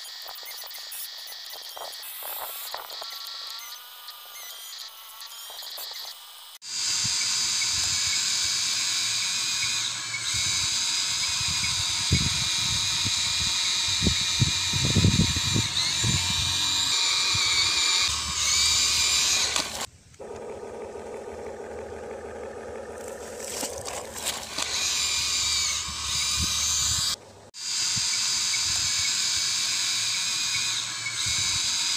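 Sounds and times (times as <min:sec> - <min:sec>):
toy electric motors whining: 0:00.0 - 0:31.9
low motor hum: 0:07.0 - 0:27.5.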